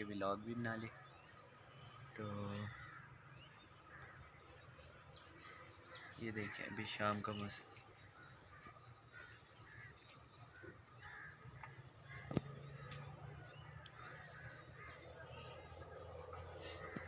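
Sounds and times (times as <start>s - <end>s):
crows cawing: 2.2s - 17.0s
sharp click: 11.6s - 13.1s.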